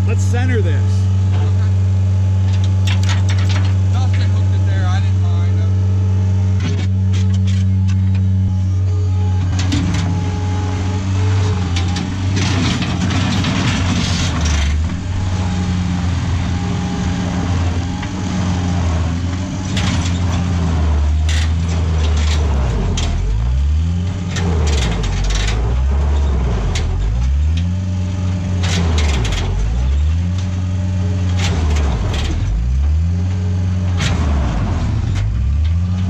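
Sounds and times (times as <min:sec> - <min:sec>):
loader engine running under load: 0:00.0 - 0:36.0
metal clanks and rattles: 0:02.4 - 0:04.4, 0:06.6 - 0:08.3, 0:11.6 - 0:15.3, 0:19.3 - 0:27.8, 0:28.5 - 0:30.6.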